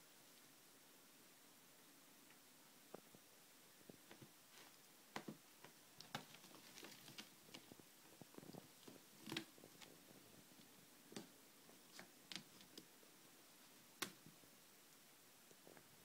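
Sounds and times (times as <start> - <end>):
claws ticking on mesh: 5.2 - 7.7.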